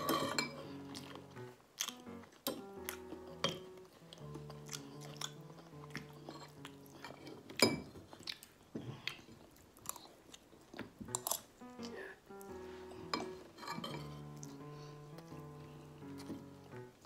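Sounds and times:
cutlery clinking on ceramic plate: 0.0s - 0.7s, 6.3s - 8.0s, 13.0s - 14.2s
soft background music: 0.0s - 8.5s, 9.8s - 17.0s
chewing: 0.0s - 17.0s.

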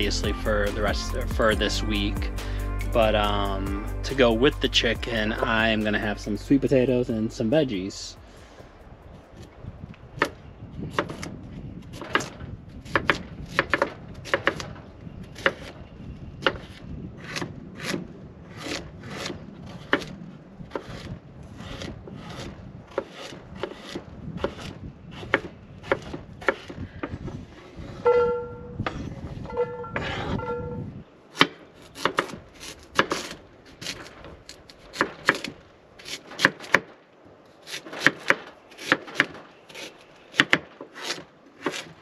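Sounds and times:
short pitched tone: 28.0s - 28.8s, 29.4s - 31.0s.

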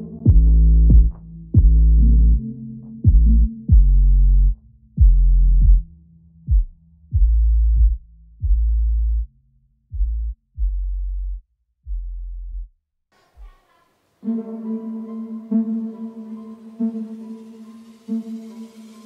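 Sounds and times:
electronic music with deep bass hits: 0.0s - 9.3s
calm music with held chord: 14.1s - 19.0s.

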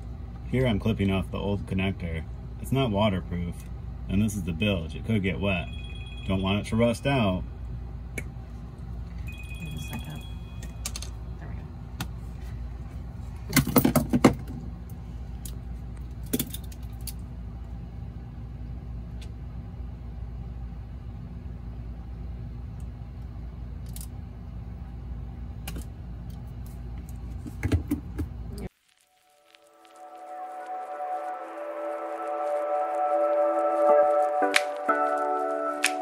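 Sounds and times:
low hum: 0.0s - 13.5s, 28.4s - 36.0s.

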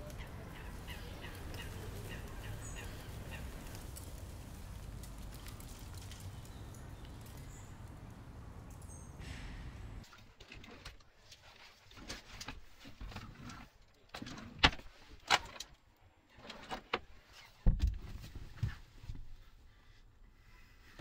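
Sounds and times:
rustling: 0.0s - 15.5s.

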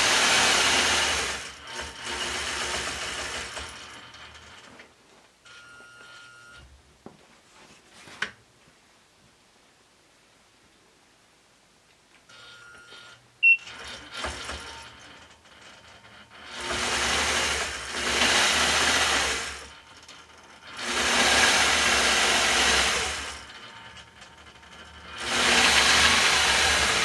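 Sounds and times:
quilting machine stitching: 0.0s - 4.7s, 13.0s - 27.0s
short high beep: 12.7s - 13.7s.

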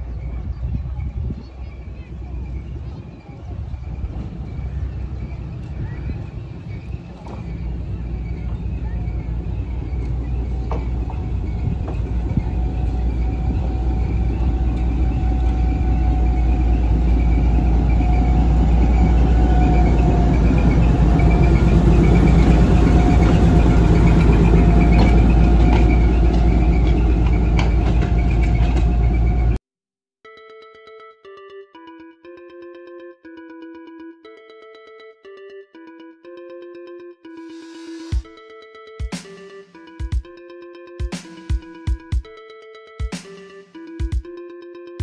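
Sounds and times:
diesel locomotive engine rumble: 0.0s - 29.6s
thin whining tone: 1.7s - 29.6s.

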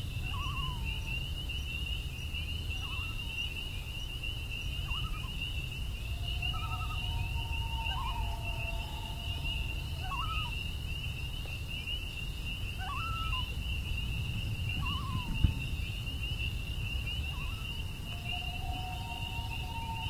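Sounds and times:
crickets chirring: 0.0s - 20.0s
whistled animal calls: 4.8s - 10.8s, 12.8s - 13.5s, 17.2s - 20.0s.

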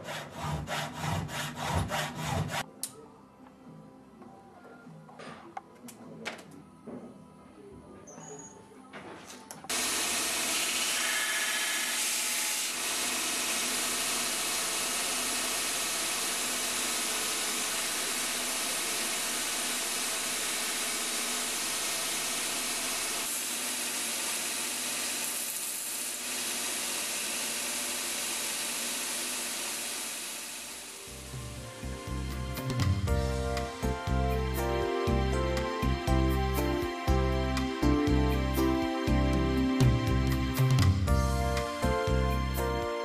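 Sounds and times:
workpiece rubbing on grinder: 0.0s - 2.6s
grinding machine running: 9.7s - 31.2s.

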